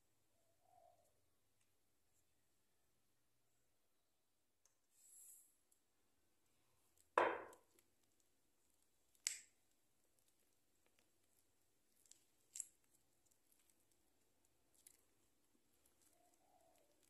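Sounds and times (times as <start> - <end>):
soft knock: 7.2 - 7.6.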